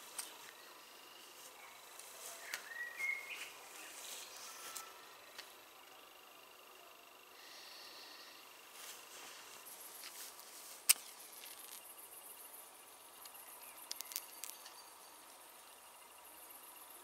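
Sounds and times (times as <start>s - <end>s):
crickets chirping: 0.0s - 17.0s
sharp clicks: 13.2s - 14.8s.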